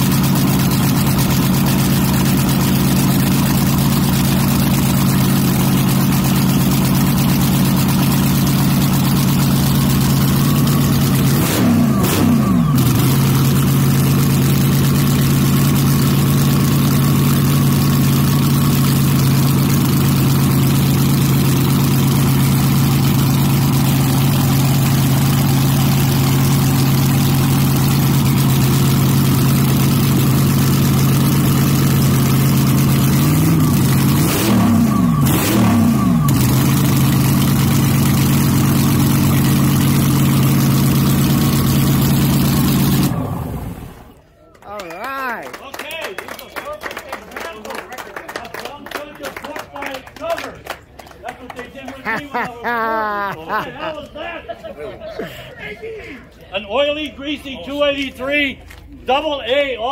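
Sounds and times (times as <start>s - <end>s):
drag car engine idling and revving: 0.0s - 44.2s.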